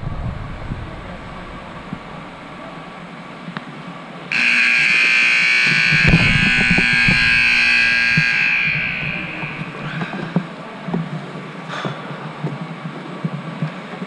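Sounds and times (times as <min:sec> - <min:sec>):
scoreboard buzzer: 0:04.3 - 0:10.2.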